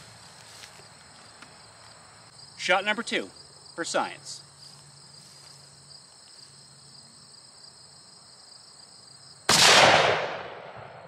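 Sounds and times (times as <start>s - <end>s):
high insect buzz: 0.0s - 9.5s
rifle shot: 9.5s - 11.0s.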